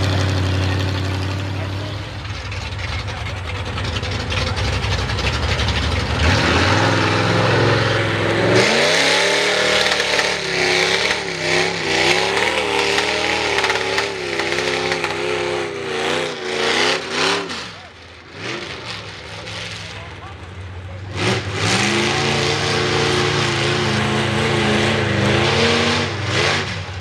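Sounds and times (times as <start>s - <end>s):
truck churning through mud: 0.0s - 27.0s
truck engine revving: 0.0s - 27.0s.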